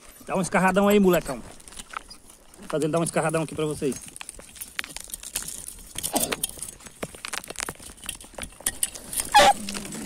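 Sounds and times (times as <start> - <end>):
metal blade scraping dirt: 8.6 - 10.0.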